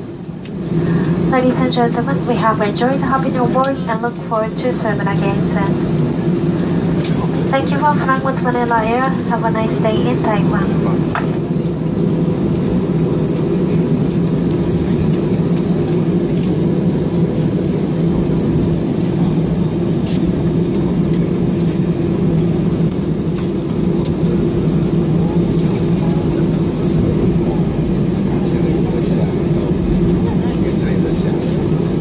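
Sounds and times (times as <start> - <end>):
airplane cabin engine noise: 0.0 - 32.0.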